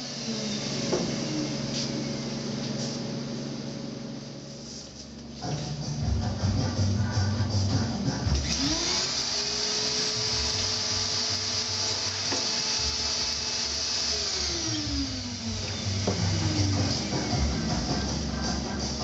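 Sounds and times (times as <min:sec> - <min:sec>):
vacuum motor whining: 0:00.0 - 0:04.2, 0:08.3 - 0:19.0.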